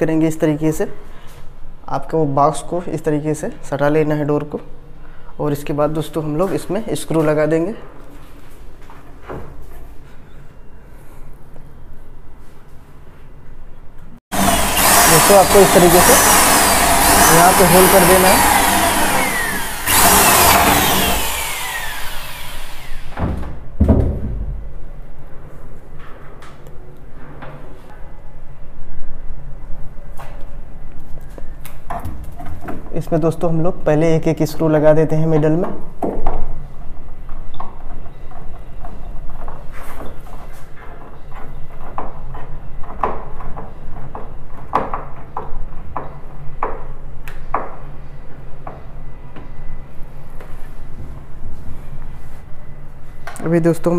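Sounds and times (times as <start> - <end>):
electric drill whine: 14.3 - 23.2
knocks: 23.2 - 24.6.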